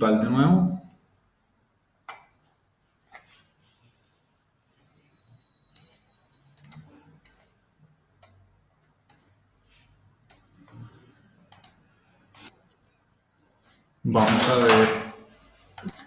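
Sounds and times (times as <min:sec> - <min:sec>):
computer mouse clicks: 0:05.7 - 0:07.5, 0:08.2 - 0:09.3, 0:10.2 - 0:10.8, 0:11.5 - 0:12.9, 0:15.7 - 0:16.0.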